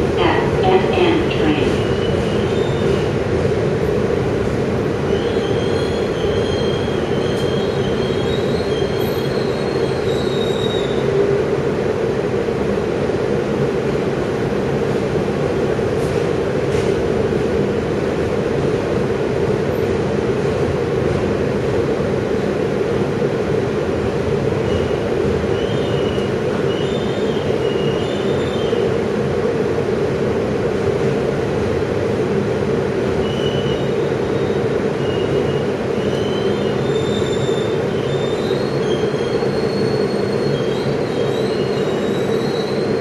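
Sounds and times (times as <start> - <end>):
train wheels rumbling on rail: 0.0 - 43.0
high wheel squeal: 5.1 - 11.0, 33.3 - 43.0.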